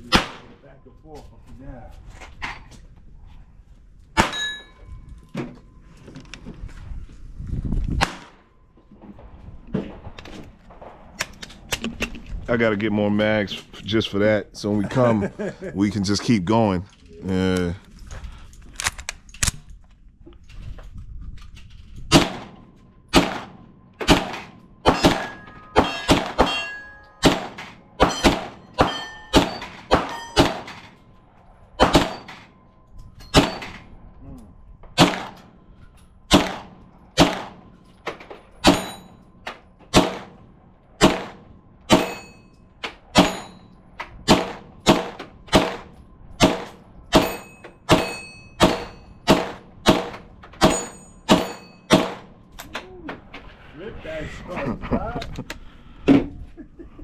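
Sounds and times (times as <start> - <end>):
gunshots: 0.0 - 0.6, 22.1 - 31.0, 31.8 - 32.5, 35.0 - 35.4, 36.3 - 37.7, 39.9 - 40.4, 41.0 - 42.3, 44.2 - 52.3
steel targets clanging: 4.2 - 5.0, 24.1 - 31.1, 31.7 - 33.9, 37.5 - 40.4, 41.2 - 43.9, 44.5 - 52.3.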